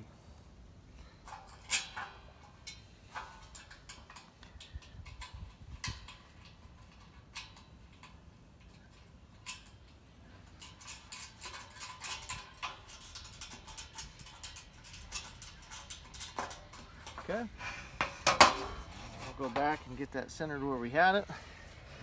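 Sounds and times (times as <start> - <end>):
small metallic clicks and taps: 1.3 - 17.4.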